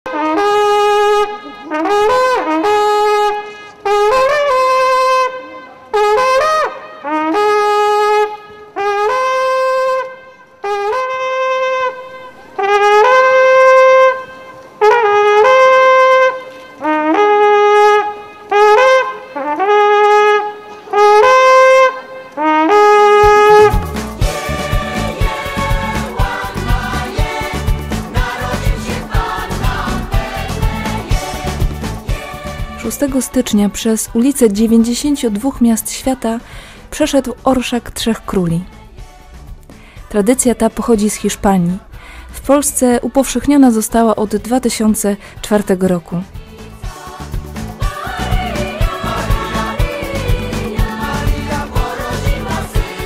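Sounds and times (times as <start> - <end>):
wooden horn calls: 0.1 - 31.5.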